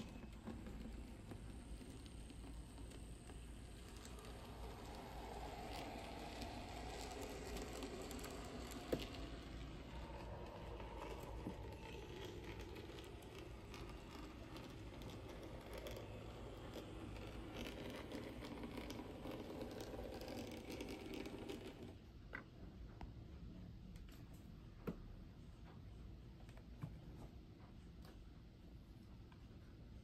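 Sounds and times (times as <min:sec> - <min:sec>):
model train rattling whirr: 0:00.0 - 0:22.0.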